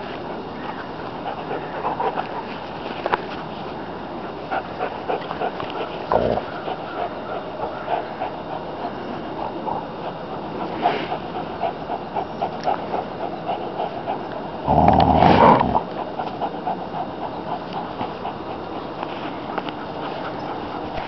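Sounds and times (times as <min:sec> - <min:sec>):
dogs play-growling: 0:00.0 - 0:21.0.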